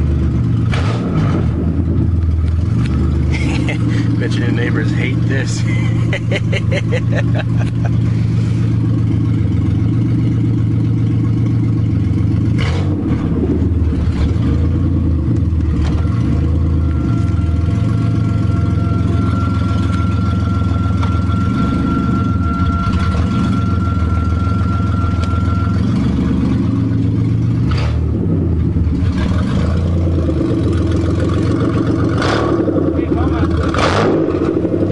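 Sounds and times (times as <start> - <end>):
car engine idling loudly: 0.0 - 34.9
thin high whistle: 16.9 - 26.0.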